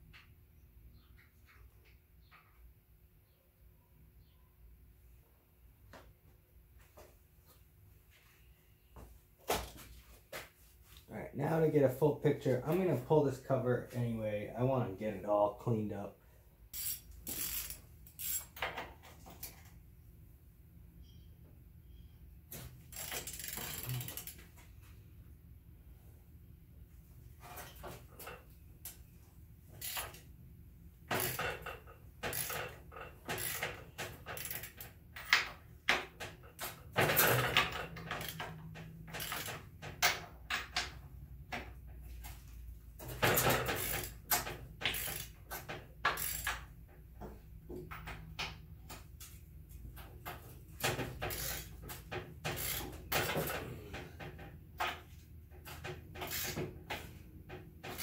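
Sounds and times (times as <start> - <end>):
hand wrench clicking on metal: 16.7 - 18.6, 22.9 - 24.4, 29.8 - 30.2, 32.3 - 35.5, 38.0 - 39.6, 43.8 - 46.7, 51.3 - 51.7.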